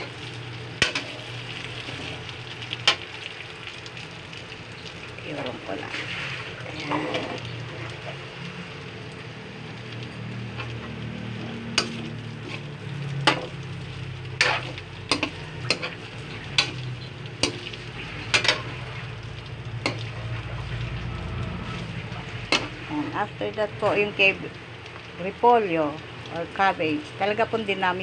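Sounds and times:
food sizzling: 0.0s - 28.0s
metal ladle scraping wok: 5.8s - 8.2s, 10.5s - 23.2s.

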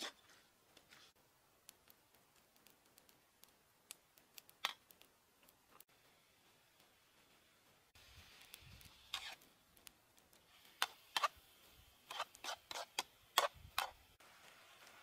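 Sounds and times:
metal spatula scraping a wok: 8.8s - 9.4s, 10.7s - 11.4s, 12.1s - 14.0s.

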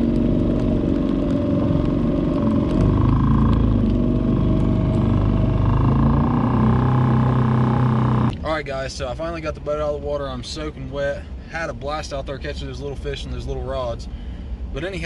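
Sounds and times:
outboard motor running: 0.0s - 8.3s.

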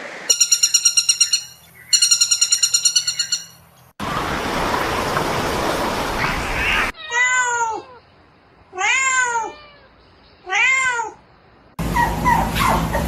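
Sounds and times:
cat meowing: 7.0s - 8.0s, 8.7s - 11.2s.

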